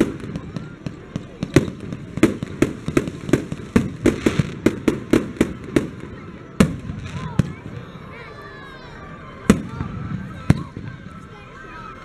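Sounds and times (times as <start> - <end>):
fireworks bangs: 0.0 - 8.0, 9.4 - 11.2.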